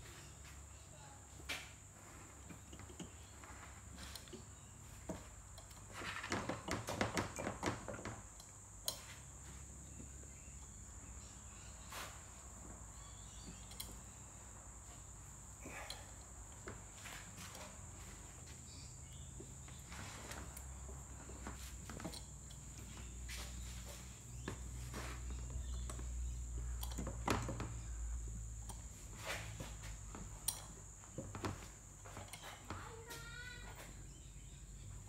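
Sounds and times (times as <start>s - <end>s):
light metal clicks and knocks: 13.3s - 14.1s, 25.6s - 28.0s.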